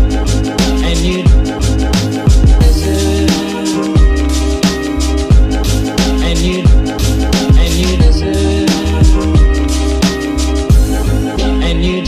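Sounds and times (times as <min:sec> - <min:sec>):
bass-drum hits: 0:00.0 - 0:11.2.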